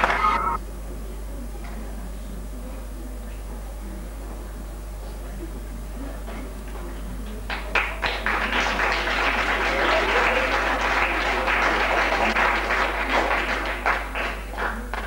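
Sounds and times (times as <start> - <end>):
audience applauding: 0.0 - 0.6, 7.5 - 15.0.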